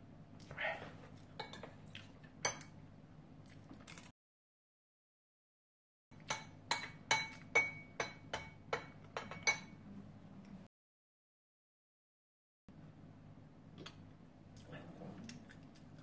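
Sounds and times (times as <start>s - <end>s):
metal spoon clinking ceramic bowl: 1.4s - 1.7s, 2.4s - 2.8s, 6.2s - 9.8s.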